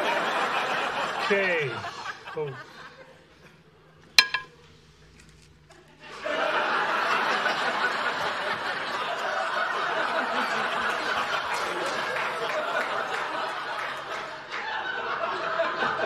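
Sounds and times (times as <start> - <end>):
studio audience laughing: 0.0 - 3.4, 5.8 - 16.0
metal utensil clinking dish: 4.2 - 4.6.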